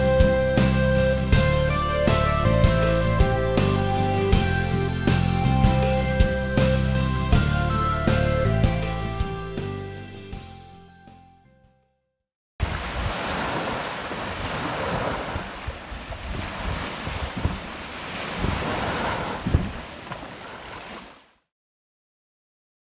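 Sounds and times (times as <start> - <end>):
wind gusting on microphone: 12.6 - 20.9
sea surf washing onto beach: 12.6 - 21.3.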